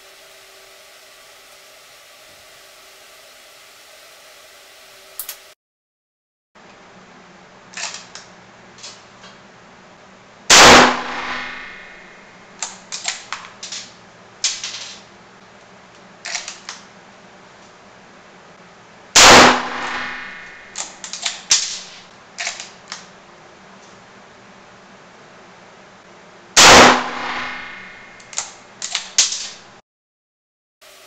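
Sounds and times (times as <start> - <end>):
rifle shot: 10.5 - 12.2, 19.2 - 22.0, 26.6 - 28.3.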